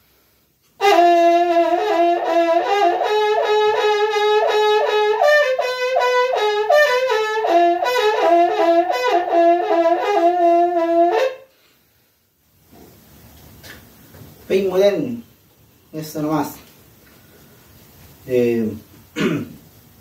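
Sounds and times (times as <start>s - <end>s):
wind instrument short notes: 0.8s - 11.5s.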